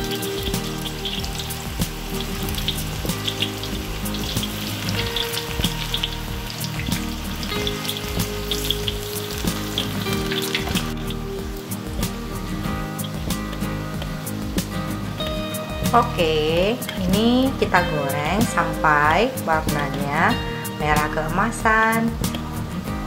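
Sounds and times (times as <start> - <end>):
deep-frying sizzle and pops: 0.0 - 23.0.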